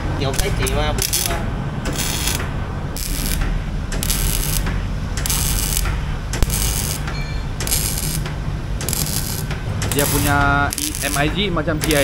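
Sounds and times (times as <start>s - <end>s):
steady low hum: 0.0s - 12.0s
welding arc sizzling: 0.4s - 12.0s.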